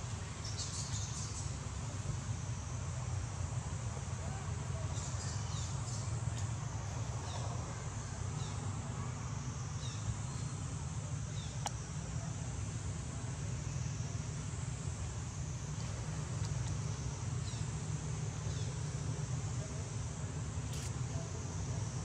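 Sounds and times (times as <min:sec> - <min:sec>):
sharp click: 0:20.7 - 0:21.0.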